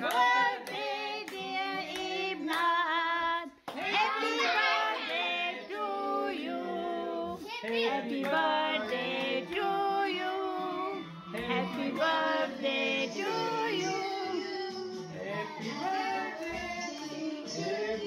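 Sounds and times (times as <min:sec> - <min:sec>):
children singing: 0:03.8 - 0:18.0.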